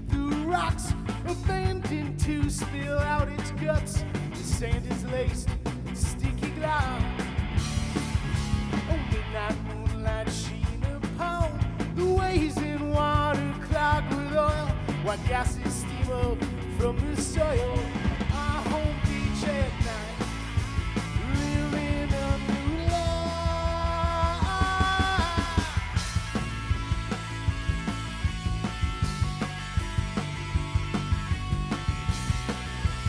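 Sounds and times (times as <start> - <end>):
drums: 0.0 - 33.0
electric bass: 0.0 - 33.0
person singing: 8.8 - 20.3, 21.2 - 26.0.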